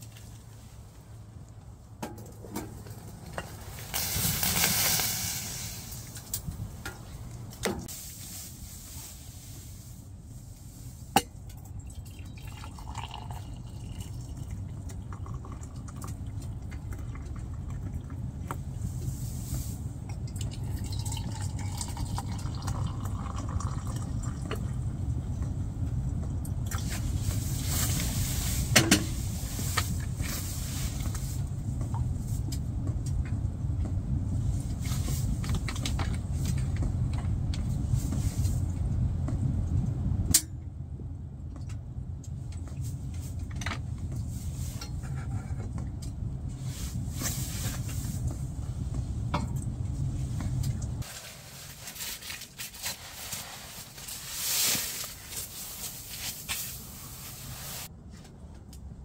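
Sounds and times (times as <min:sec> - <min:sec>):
hot drink pouring into mugs: 0:11.9 - 0:18.2, 0:20.3 - 0:24.6.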